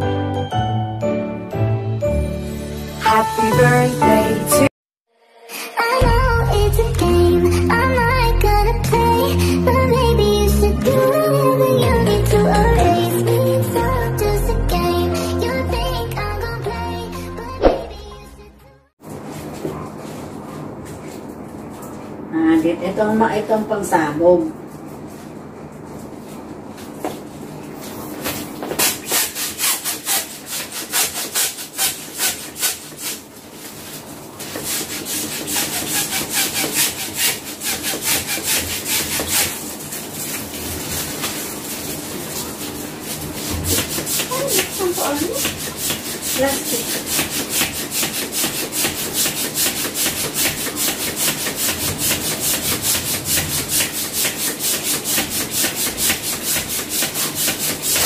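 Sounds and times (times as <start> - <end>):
plastic balloon pump strokes: 28.6 - 58.0.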